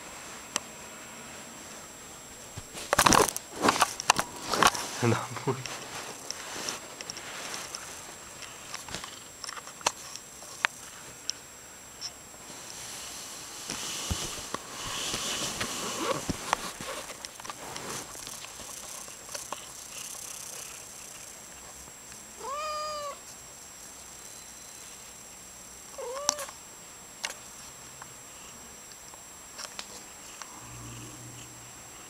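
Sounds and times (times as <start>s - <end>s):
scratchy rustling with clicks: 13.6s - 21.7s
cat meowing: 22.4s - 23.2s, 26.0s - 26.5s.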